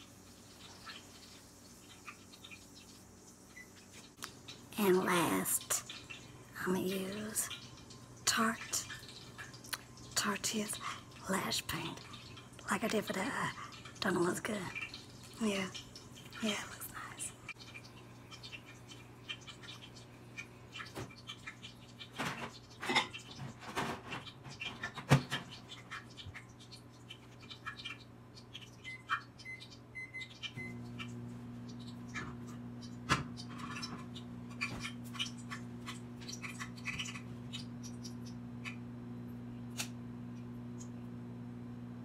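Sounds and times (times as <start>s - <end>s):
low electrical hum: 0.0s - 42.0s.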